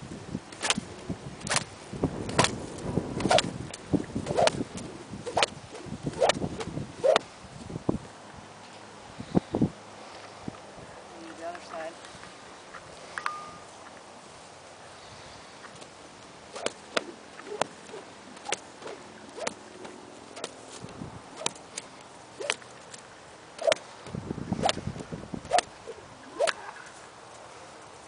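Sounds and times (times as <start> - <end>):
stick and string slapping: 0.5 - 0.8, 1.4 - 1.7, 2.3 - 2.6, 3.2 - 6.4, 16.5 - 19.6, 21.4 - 22.7, 23.6 - 23.8, 24.6 - 24.8, 25.5 - 26.7.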